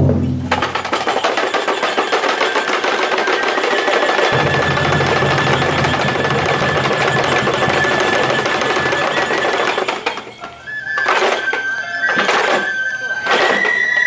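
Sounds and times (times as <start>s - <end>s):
loud percussion strike: 0.0s - 0.9s, 4.3s - 8.9s
fast percussive clatter: 0.0s - 10.4s
bamboo flutes high note: 10.4s - 14.0s.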